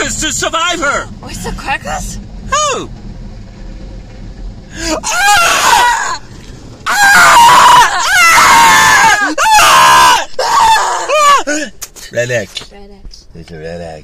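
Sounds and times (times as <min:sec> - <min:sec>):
man screaming: 0:04.8 - 0:06.2, 0:06.9 - 0:11.7.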